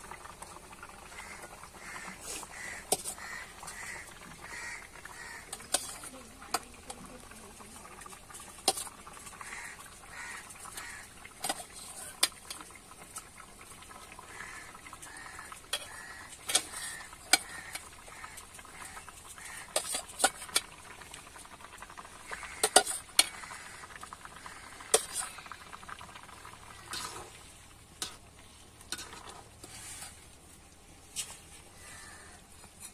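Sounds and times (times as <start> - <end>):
gravy simmering: 0.0 - 32.9.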